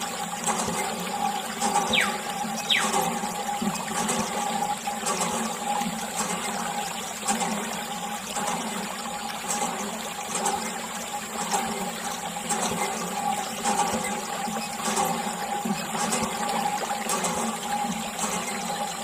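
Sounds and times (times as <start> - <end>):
water trickling into puddle: 0.0 - 19.0.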